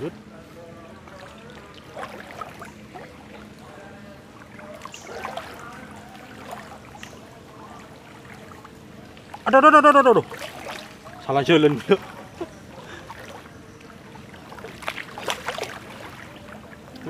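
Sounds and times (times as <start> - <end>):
faint hum: 0.0 - 17.0
water sloshing from wading: 0.0 - 17.0
small splashes and clicks: 1.1 - 3.7, 4.4 - 9.5, 10.2 - 17.0.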